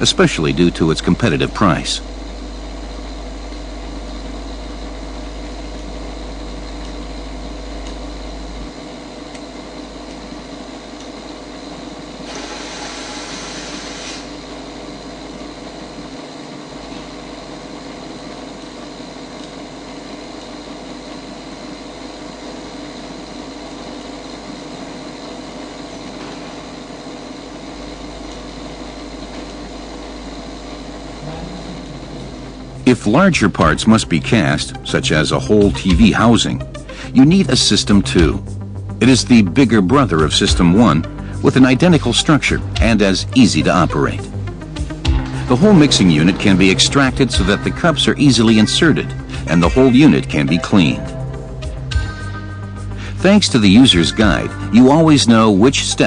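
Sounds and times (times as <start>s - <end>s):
machine hum: 0.0s - 56.0s
hiss: 12.2s - 14.4s.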